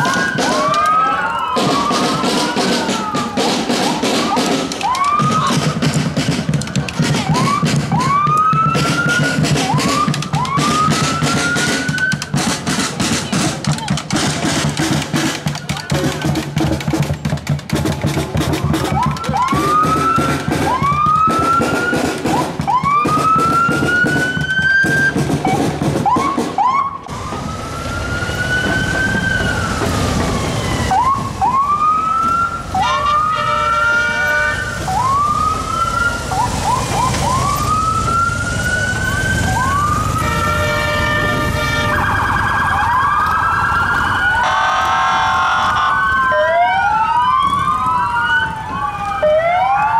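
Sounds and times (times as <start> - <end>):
drumbeats: 0.0 - 44.5
police sirens whooping: 0.0 - 49.9
buzzing horn-like siren: 26.9 - 49.9.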